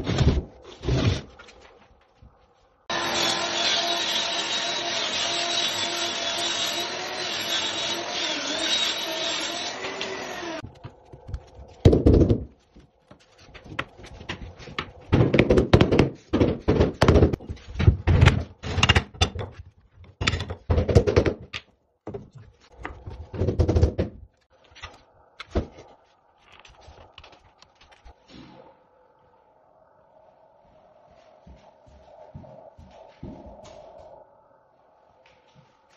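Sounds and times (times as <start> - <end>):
table saw ripping wood: 2.9 - 10.6
irregular knocks and thuds: 10.6 - 24.3.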